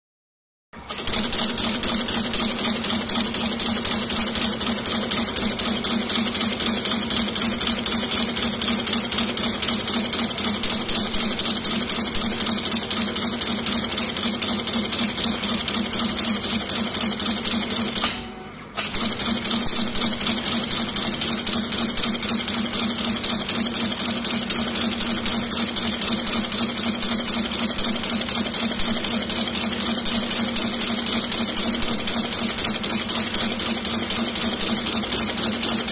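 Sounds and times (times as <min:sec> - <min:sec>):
tufting machine clatter: 0:18.8 - 0:35.9.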